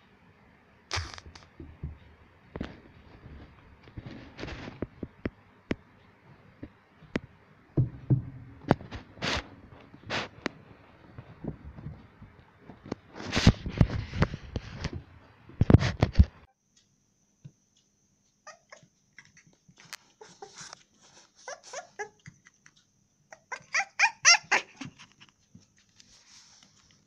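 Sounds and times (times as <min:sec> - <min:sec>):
close bumps and rustling: 0:07.8 - 0:16.5
puppy whimpering: 0:18.4 - 0:25.3.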